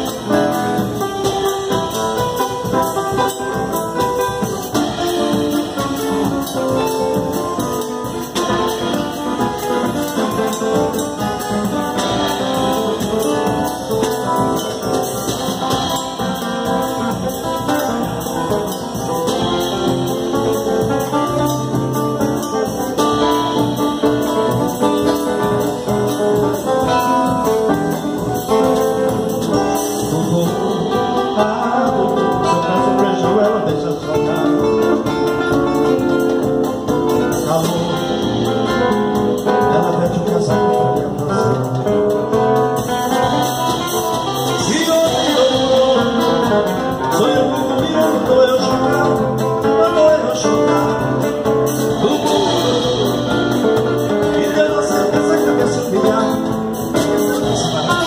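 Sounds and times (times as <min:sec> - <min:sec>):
picked guitar melody: 0:00.0 - 0:58.0
strummed acoustic guitar chords: 0:00.0 - 0:58.0
man singing wordlessly: 0:28.5 - 0:36.1, 0:37.1 - 0:42.5, 0:44.0 - 0:58.0.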